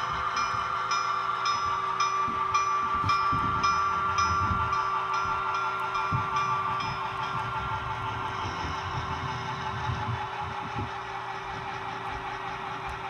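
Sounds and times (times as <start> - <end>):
bell ringing: 0.0 - 9.0
model locomotive engine tone: 0.0 - 13.0.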